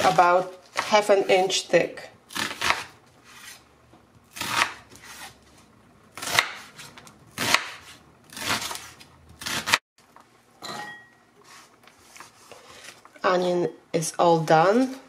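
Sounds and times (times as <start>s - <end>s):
knife cutting onion on wooden board: 0.0s - 1.6s, 2.3s - 3.6s, 4.3s - 5.4s, 6.1s - 9.8s.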